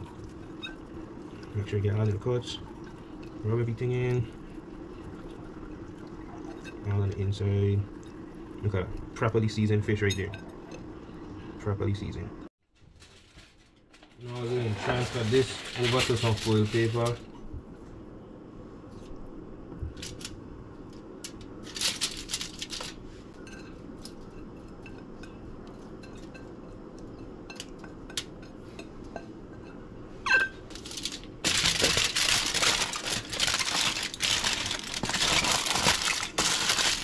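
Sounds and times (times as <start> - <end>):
aluminium foil crinkling: 12.8 - 17.3, 19.9 - 20.4, 21.2 - 23.1, 30.7 - 37.0.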